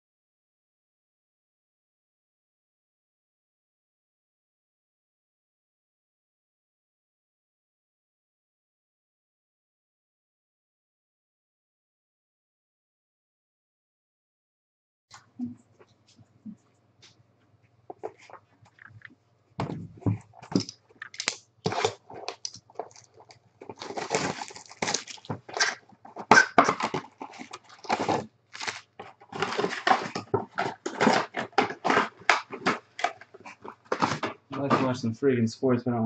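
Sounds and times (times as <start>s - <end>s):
cardboard boxes and cards handled: 17.9s - 35.0s
foil packs tearing and crinkling: 20.4s - 34.7s.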